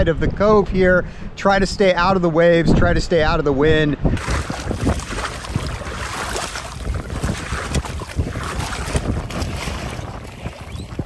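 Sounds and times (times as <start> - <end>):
wind buffeting microphone: 0.0 - 11.0
water splashing against canoe hull: 4.2 - 11.0.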